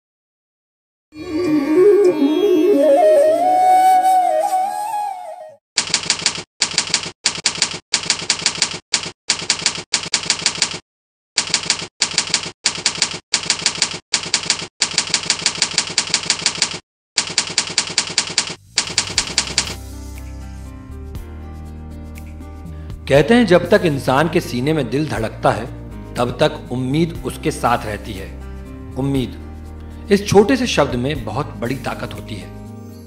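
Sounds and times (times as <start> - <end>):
soft music: 1.2 - 5.6, 19.0 - 33.0
typewriter keystroke clacks: 5.8 - 10.8, 11.4 - 19.8.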